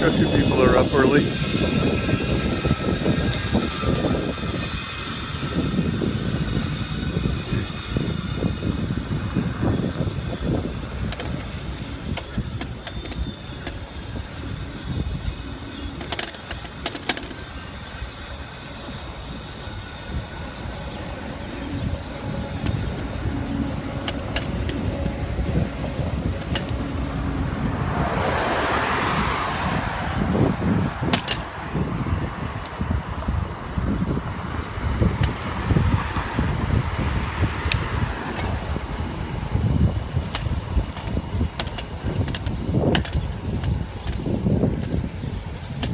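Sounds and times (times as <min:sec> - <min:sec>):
bicycle clicks and rattles: 0:00.0 - 0:45.9
wind rumble on microphone: 0:00.0 - 0:45.9
car passing: 0:26.2 - 0:32.3.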